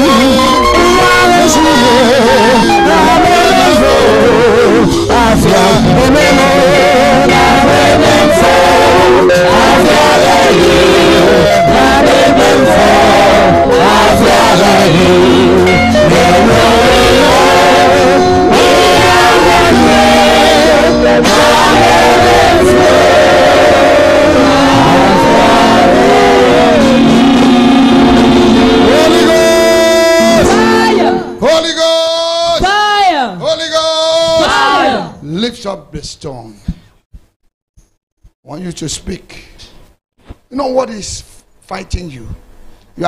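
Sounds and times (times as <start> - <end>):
group singing gospel song: 0.0 - 31.5, 34.3 - 35.2
live church band: 0.0 - 32.6.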